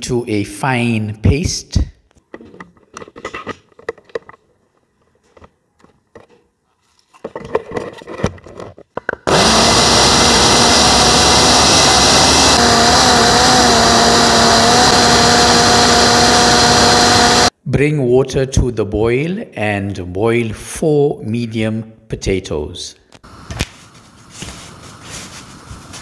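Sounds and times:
electric blender running: 9.3 - 17.5.

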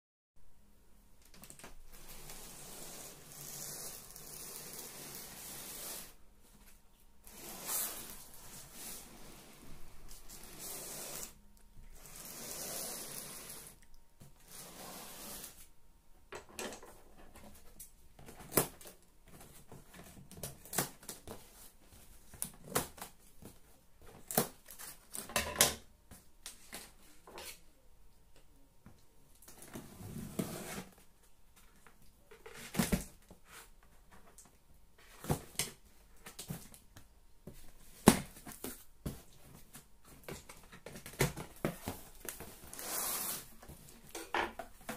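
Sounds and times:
cardboard rustling and scraping: 1.5 - 13.8, 29.5 - 31.1, 37.5 - 44.9.

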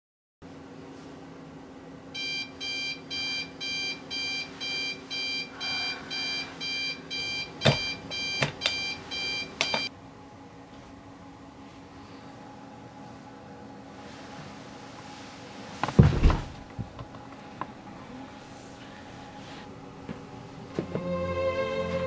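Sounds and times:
alarm clock beeping: 2.2 - 9.9.

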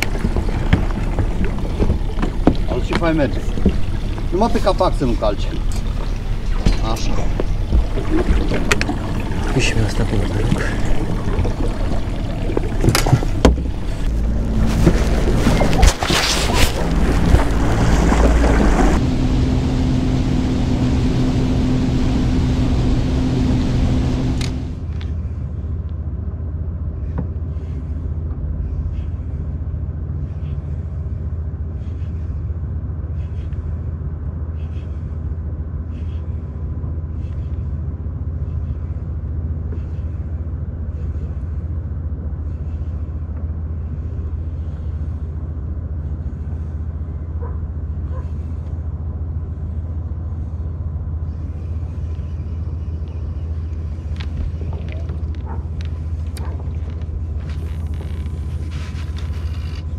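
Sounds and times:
low rumble: 0.0 - 59.9
fishing reel whirring: 57.4 - 59.9.

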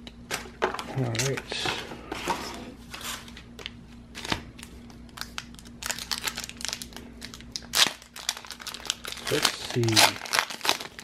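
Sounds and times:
foil wrapper crinkling: 4.2 - 11.0.

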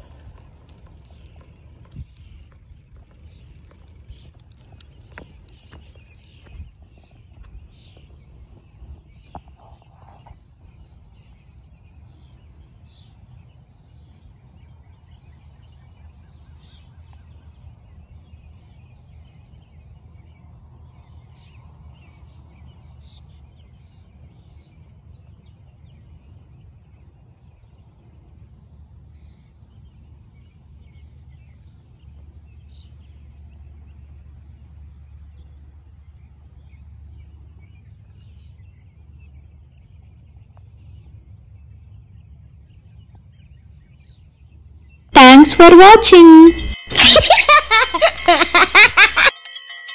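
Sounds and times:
wind buffeting microphone: 0.0 - 11.0
small birds chirping: 0.0 - 20.0.

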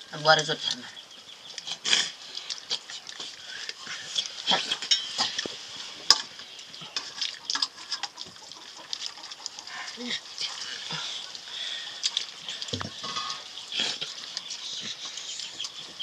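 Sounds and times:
metal dishes clinking: 4.7 - 5.4, 13.0 - 14.0.

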